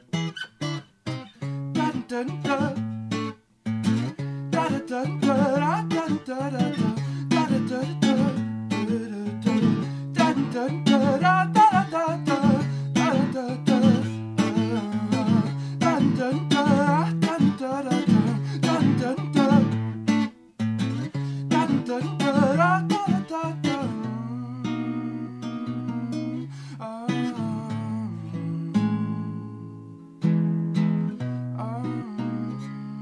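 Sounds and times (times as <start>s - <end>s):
acoustic guitar tapping and plucking: 0.0s - 26.4s.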